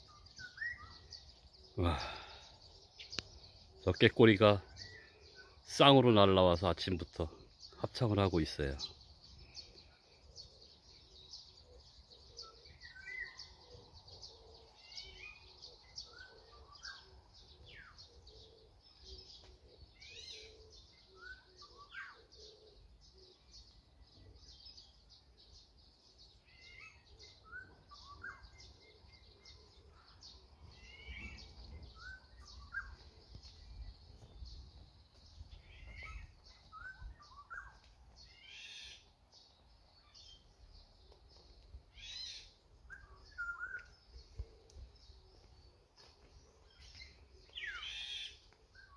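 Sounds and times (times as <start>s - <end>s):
fluty whistled bird calls: 0.0s - 1.3s, 12.2s - 13.5s, 26.5s - 29.7s, 30.8s - 34.4s, 35.6s - 39.0s, 41.9s - 44.1s, 46.7s - 48.9s
high chirping of small birds: 0.0s - 48.9s.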